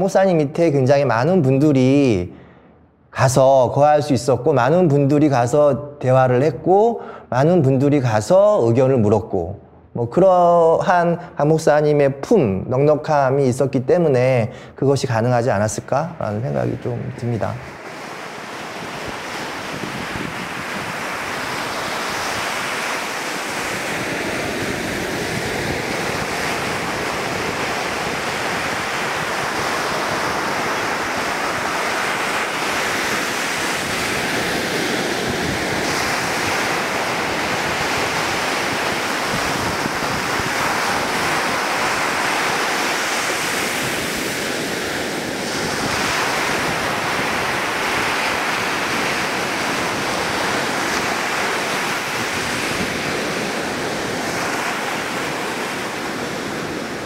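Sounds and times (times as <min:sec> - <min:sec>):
ocean waves breaking: 0:15.8 - 0:57.0.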